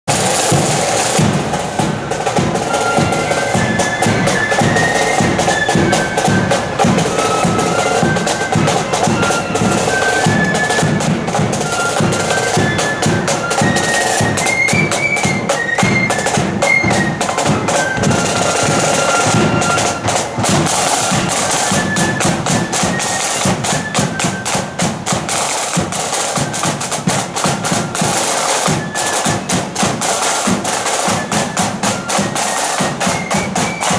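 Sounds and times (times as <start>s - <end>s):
flutes playing melody: 0.1s - 33.9s
side drum rolls: 0.1s - 33.9s
steady drumbeats: 0.1s - 33.9s.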